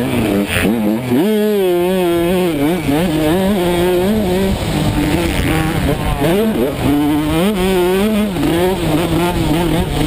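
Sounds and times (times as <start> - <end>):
two-stroke motocross engine revving: 0.0 - 10.0
wind rush: 2.1 - 10.0.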